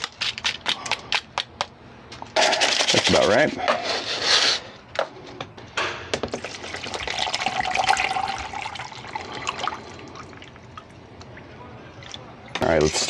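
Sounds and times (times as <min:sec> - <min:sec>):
water pouring into paper cup: 0:06.4 - 0:10.6.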